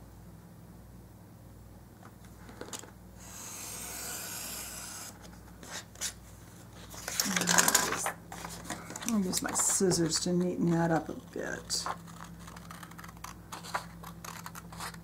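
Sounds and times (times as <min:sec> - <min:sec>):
paper rustling: 0:05.2 - 0:15.0
paper scraping on surface: 0:06.8 - 0:15.0.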